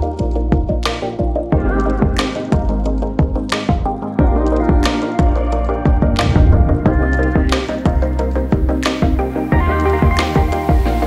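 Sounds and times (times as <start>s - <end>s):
electronic background music: 0.0s - 11.0s.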